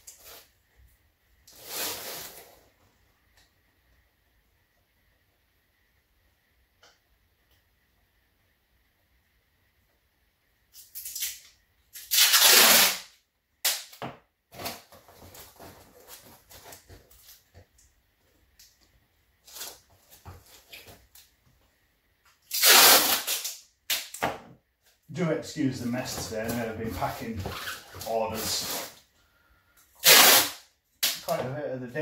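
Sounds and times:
packing tape ripping off roll: 10.7s - 17.4s, 22.4s - 24.3s, 27.0s - 29.0s, 30.0s - 31.4s
paper and cardboard rustling: 25.7s - 29.0s.

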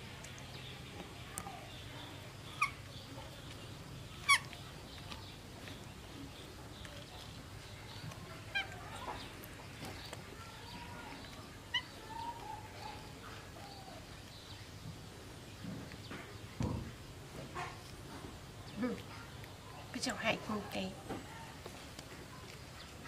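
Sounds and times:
faint chirping: 0.0s - 23.0s
sharp animal calls: 4.2s - 4.6s.

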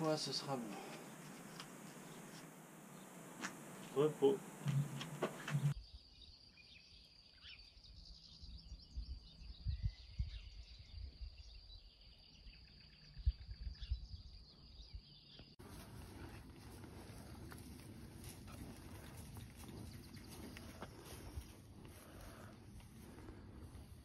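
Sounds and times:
windy hiss: 0.0s - 5.7s
high insect buzz: 0.0s - 5.8s
wind on microphone: 8.9s - 11.6s.

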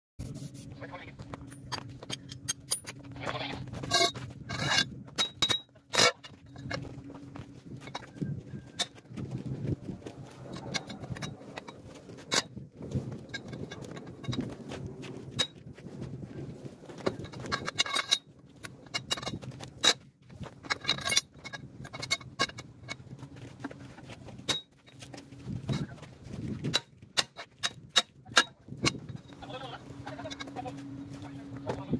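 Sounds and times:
steady low hum: 0.2s - 31.9s
metal tools clinking and scraping: 1.3s - 9.0s, 10.5s - 14.5s, 17.0s - 31.9s
sharp metal clanks: 1.4s - 3.2s, 3.8s - 6.8s.

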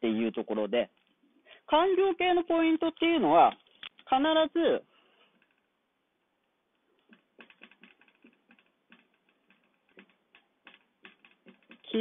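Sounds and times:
marker writing on whiteboard: 7.0s - 12.0s.

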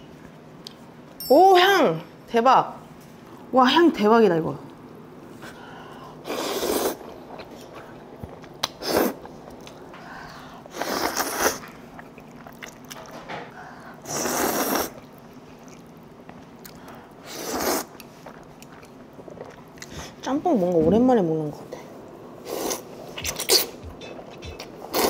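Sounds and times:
slurping noodles: 6.2s - 7.1s, 8.8s - 9.3s, 10.7s - 12.6s, 14.0s - 15.1s, 17.2s - 18.5s, 22.4s - 23.8s, 24.4s - 25.0s
faint chewing: 7.0s - 20.2s.

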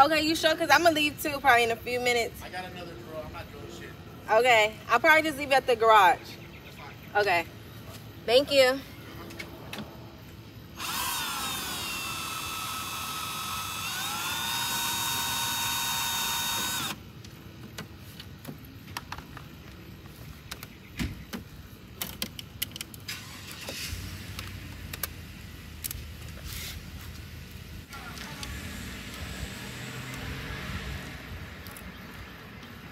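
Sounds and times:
power drill motor whining: 10.8s - 17.0s.

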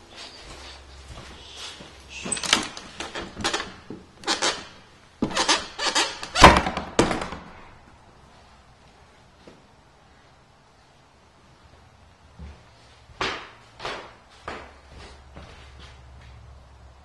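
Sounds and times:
door knocks and rattles: 6.2s - 7.6s.

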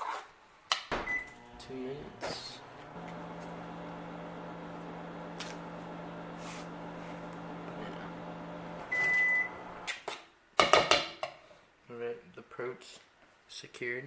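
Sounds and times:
microwave beep: 1.0s - 9.9s
microwave oven humming: 1.0s - 9.9s.

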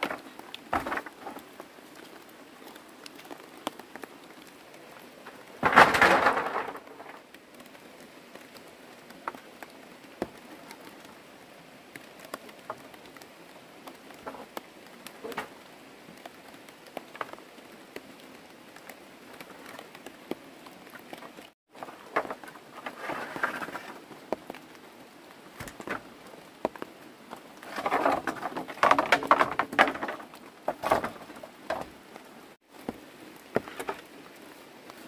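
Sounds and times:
bamboo poles clattering down: 0.0s - 1.5s, 5.4s - 7.3s, 21.8s - 24.1s, 25.6s - 26.1s, 27.6s - 32.0s, 33.6s - 34.1s
rain patter: 0.0s - 35.0s
bamboo knocking: 27.7s - 31.9s.

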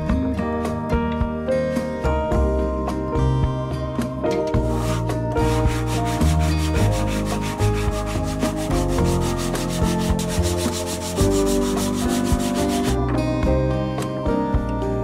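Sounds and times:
background music with bass: 0.0s - 15.0s
hand sanding wood: 4.6s - 13.0s.

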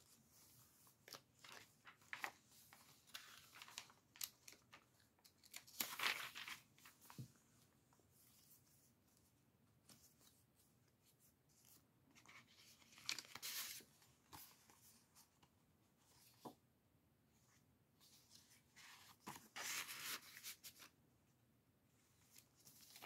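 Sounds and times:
paper rustling and sliding: 12.2s - 15.0s, 18.1s - 20.9s.

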